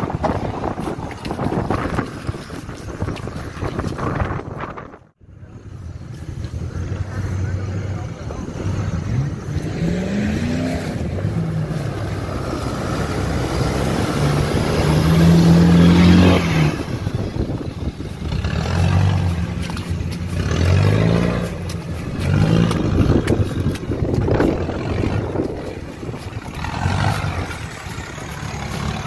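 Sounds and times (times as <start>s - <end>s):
diesel engine revving hard: 6.7s - 29.0s.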